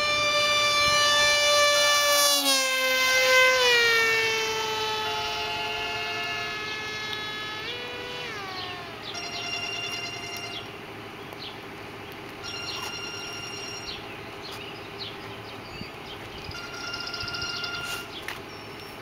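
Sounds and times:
warning signal wail and blasts: 0.0 - 10.8, 16.5 - 18.1
steady low tone: 3.2 - 11.3.

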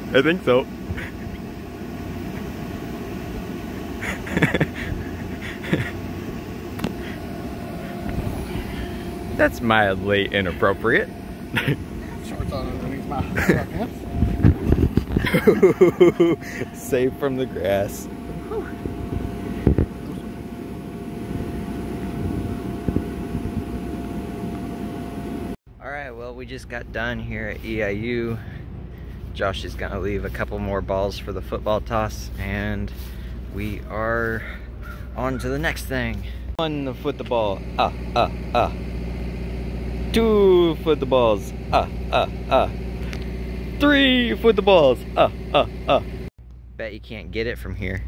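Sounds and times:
low mechanical hum: 0.0 - 48.0
voices and laughter: 0.9 - 1.4, 4.0 - 6.1, 11.5 - 16.8.

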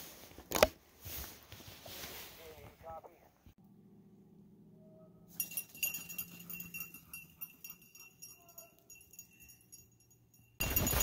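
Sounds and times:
dog collar bell jingling: 5.3 - 11.0.

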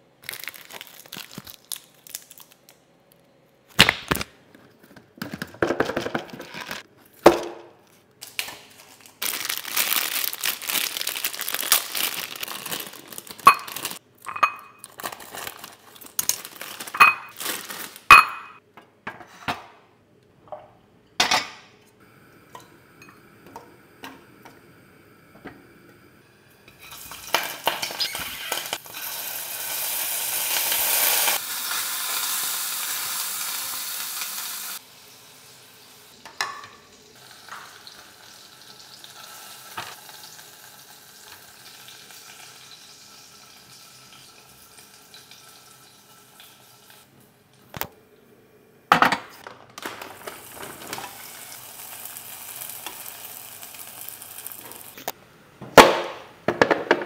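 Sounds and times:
plastic packaging crinkling: 0.2 - 2.8, 8.2 - 14.0, 14.8 - 18.5
sausages sizzling in oil: 26.2 - 47.2, 50.1 - 55.1.

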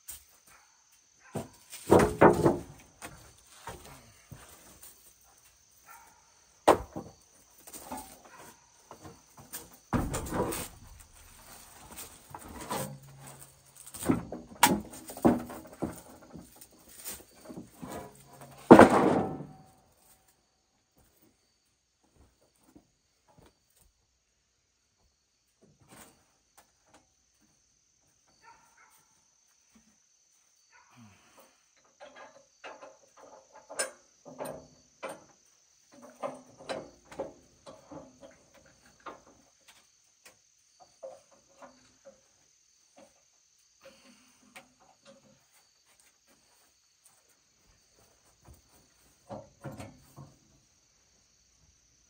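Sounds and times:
wood and metal clattering: 1.2 - 20.2, 31.8 - 50.7.

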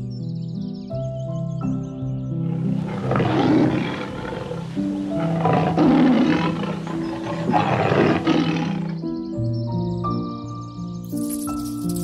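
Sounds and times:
lion roaring: 2.4 - 9.1.

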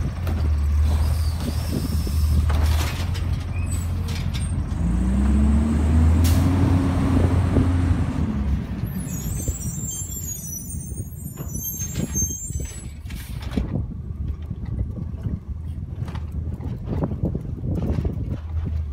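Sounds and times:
garbage truck diesel engine revving: 3.7 - 9.6.

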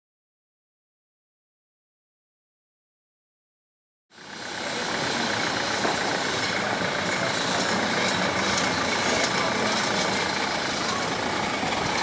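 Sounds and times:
electric tram on rails: 4.1 - 12.0
street ambience: 4.1 - 12.0.

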